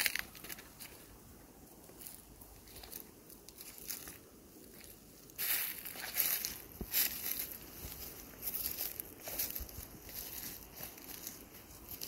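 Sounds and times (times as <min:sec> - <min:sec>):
footsteps crunching dry leaves: 0:00.0 - 0:01.2, 0:01.8 - 0:12.0.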